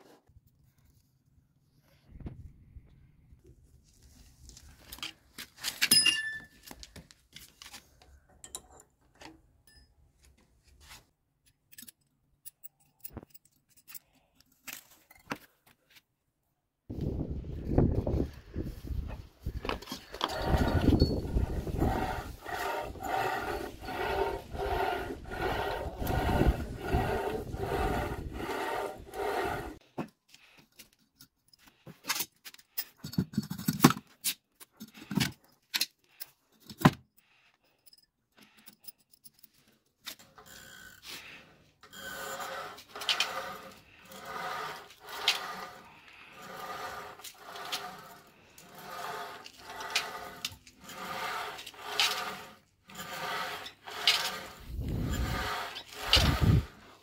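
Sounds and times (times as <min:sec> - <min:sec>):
rope squeaking over pulley: 0:20.0 - 0:29.8, 0:41.8 - 0:57.0.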